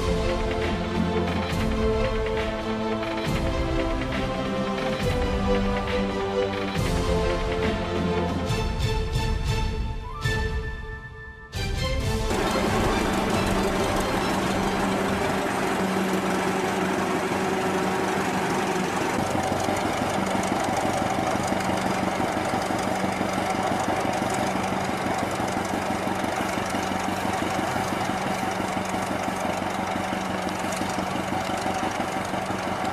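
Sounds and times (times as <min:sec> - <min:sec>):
tractor engine running rhythmically: 0:00.0 - 0:09.8, 0:11.7 - 0:32.9.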